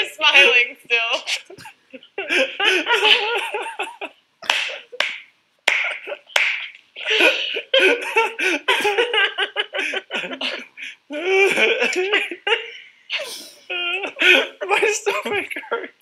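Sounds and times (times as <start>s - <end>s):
woman and man laughing: 1.2s - 5.1s, 7.0s - 12.8s.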